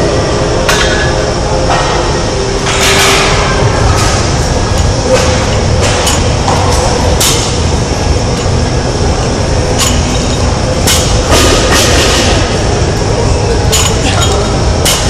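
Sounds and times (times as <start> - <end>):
loud background rumble: 0.0 - 15.0
barbell plates clanking: 9.6 - 12.6.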